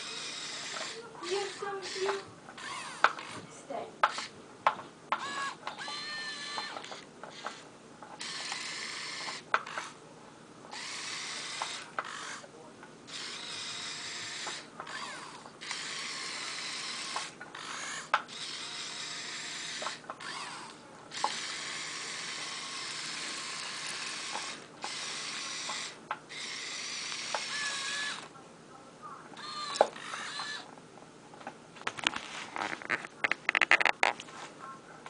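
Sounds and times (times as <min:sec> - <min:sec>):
electric motors whirring: 0:00.0 - 0:04.3, 0:05.1 - 0:10.0, 0:10.7 - 0:12.5, 0:13.1 - 0:28.4, 0:29.4 - 0:30.7.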